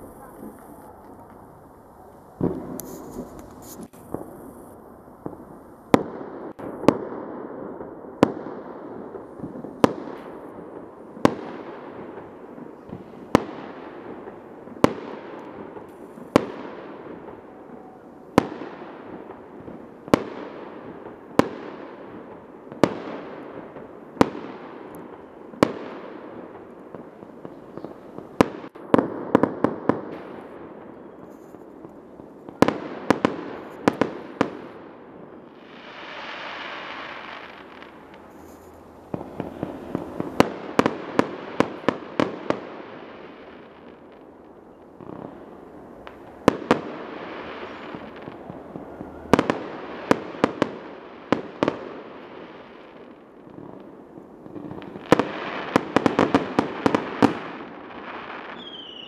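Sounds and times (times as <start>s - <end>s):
firework shells bursting: 2.4s - 4.7s.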